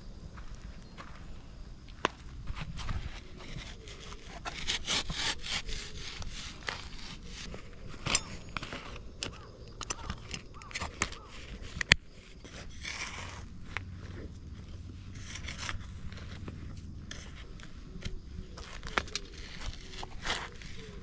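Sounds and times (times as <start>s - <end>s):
sticks crackling and snapping: 8.0s - 12.1s, 14.7s - 21.0s.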